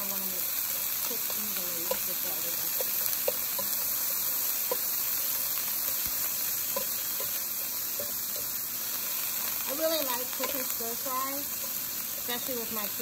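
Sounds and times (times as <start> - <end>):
vegetables sizzling in oil: 0.0 - 13.0
spoon clicking against pan: 1.2 - 5.0, 6.7 - 8.6.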